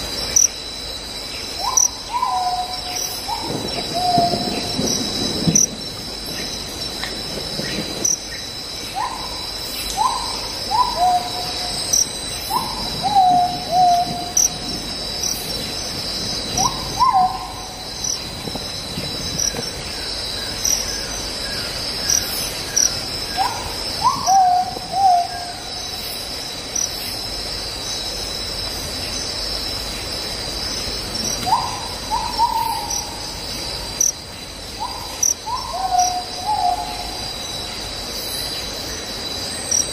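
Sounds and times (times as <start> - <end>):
crickets chirping: 0.0 - 39.9
bird hooting call: 1.6 - 4.7, 10.0 - 11.8, 12.5 - 14.6, 16.6 - 17.8, 23.3 - 25.7, 31.4 - 33.2, 34.8 - 37.3.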